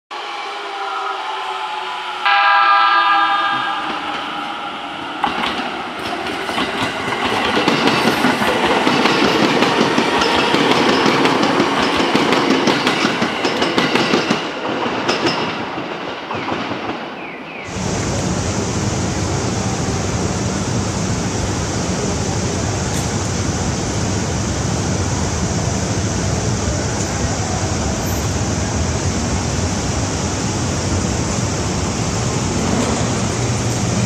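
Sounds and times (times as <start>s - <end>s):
electric train passing: 0.1s - 34.0s.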